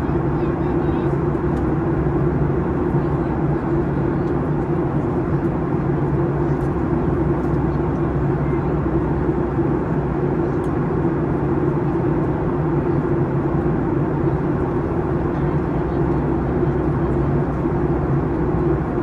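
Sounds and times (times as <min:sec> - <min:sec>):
constant low hum: 0:00.0 - 0:19.0
engine and airflow rush: 0:00.0 - 0:19.0.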